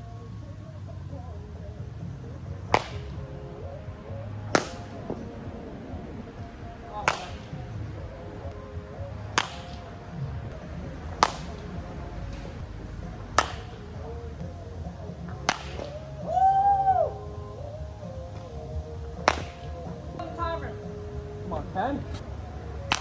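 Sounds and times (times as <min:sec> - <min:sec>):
background music: 0:00.0 - 0:23.0
baseball bat cracking ball: 0:02.6 - 0:03.3, 0:04.4 - 0:05.3, 0:06.9 - 0:07.9, 0:09.2 - 0:10.0, 0:11.0 - 0:14.1, 0:15.2 - 0:16.3, 0:19.1 - 0:20.0, 0:22.8 - 0:23.0.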